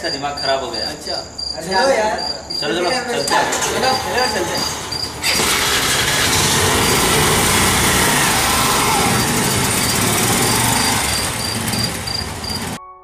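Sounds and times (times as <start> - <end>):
motorcycle engines pulling away: 3.2 - 12.8.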